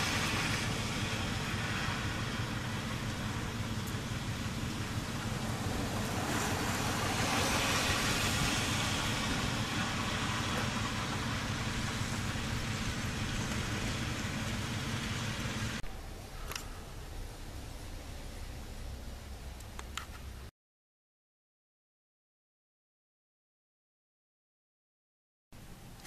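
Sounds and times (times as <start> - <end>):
low steady hum: 0.0 - 20.5
road traffic rushing: 0.0 - 20.5
vehicle passing: 0.0 - 20.5.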